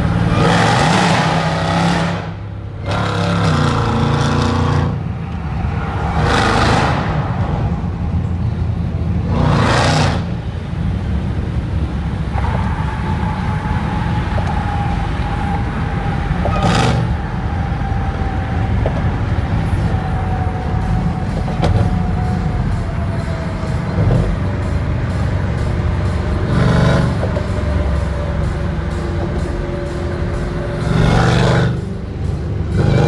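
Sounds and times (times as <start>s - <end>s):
low exhaust drone: 0.0s - 33.0s
rushes of noise: 4.9s - 10.4s.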